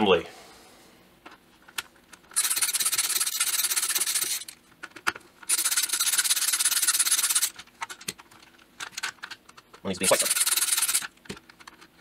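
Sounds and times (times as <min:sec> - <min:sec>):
ratchet screwdriver clicking: 0:10.2 - 0:11.1.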